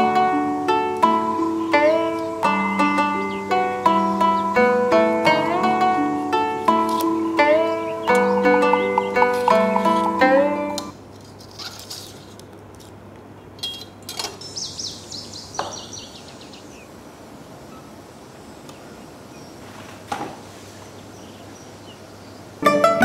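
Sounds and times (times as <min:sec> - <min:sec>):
high falling chirps: 0:00.0 - 0:10.9
utensils clicking and tapping: 0:08.1 - 0:10.9.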